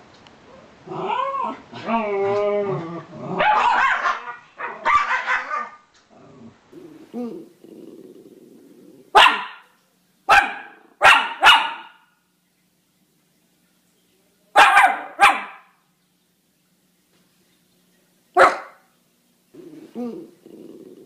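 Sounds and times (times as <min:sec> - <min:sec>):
small dog barking: 0:03.4 - 0:05.8, 0:09.1 - 0:12.2, 0:14.5 - 0:15.8, 0:18.4 - 0:18.9.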